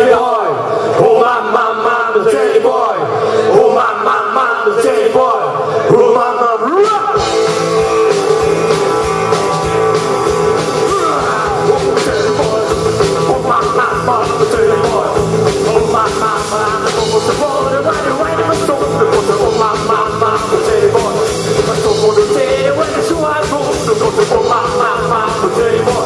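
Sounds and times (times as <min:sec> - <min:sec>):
man singing: 0:00.0 - 0:26.0
drums: 0:06.6 - 0:26.0
bass rhythm section: 0:06.9 - 0:26.0
electric guitars: 0:07.0 - 0:26.0.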